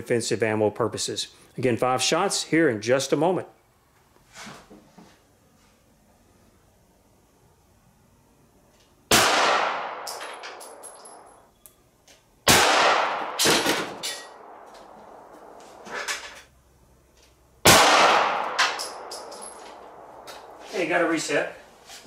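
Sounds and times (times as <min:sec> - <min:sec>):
pistol shots: 0:09.1 - 0:11.2, 0:12.4 - 0:15.3, 0:17.6 - 0:20.6.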